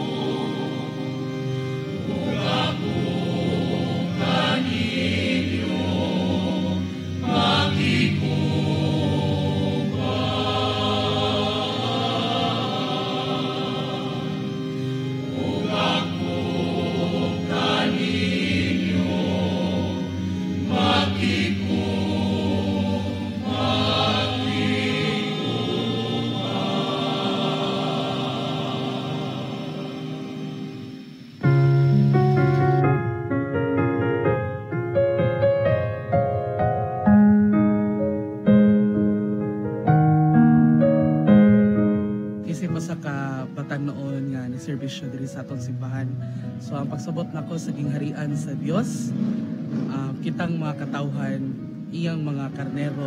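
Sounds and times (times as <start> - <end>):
mixed choir singing a hymn: 0.0 - 31.9, 46.7 - 53.0
electronic keyboard: 0.0 - 53.0.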